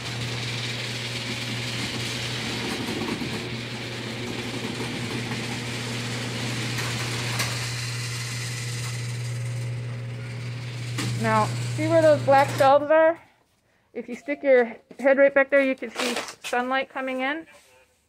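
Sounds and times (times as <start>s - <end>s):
garage door rattling: 0.0s - 12.8s
garage door motor hum: 0.0s - 13.0s.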